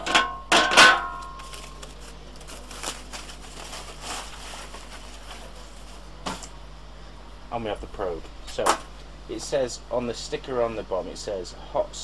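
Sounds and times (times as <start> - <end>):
cardboard packaging rustling: 1.1 - 6.6.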